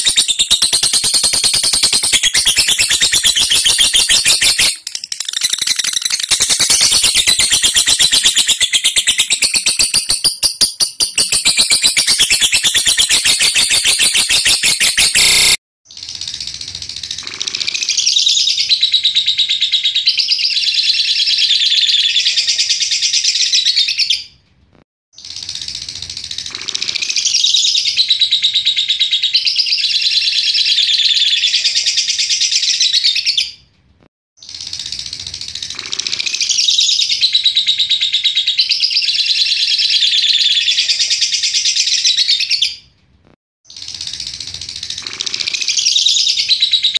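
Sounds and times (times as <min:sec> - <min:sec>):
bird chattering trill: 0:00.0 - 0:15.6.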